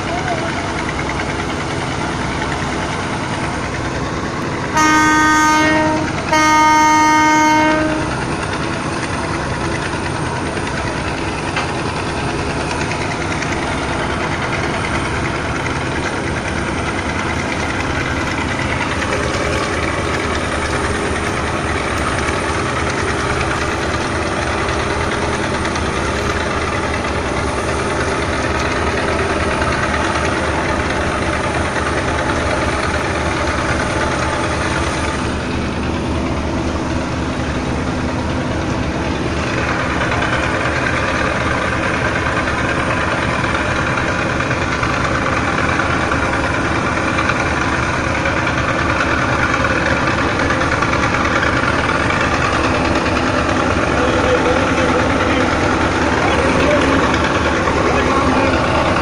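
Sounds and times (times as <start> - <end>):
boat engine droning: 0.0 - 59.0
boat horn blowing: 4.7 - 8.3.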